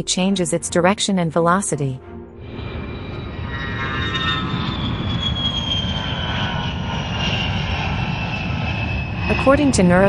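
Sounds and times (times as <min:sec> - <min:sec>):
high falling whine: 0:02.4 - 0:09.9
jet engine roar: 0:02.4 - 0:10.0.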